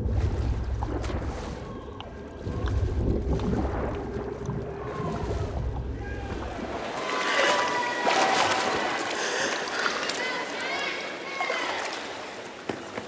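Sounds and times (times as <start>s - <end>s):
muffled underwater swimming rumble: 0.0s - 7.3s
water splashing: 0.0s - 13.0s
voices shouting: 6.0s - 12.4s.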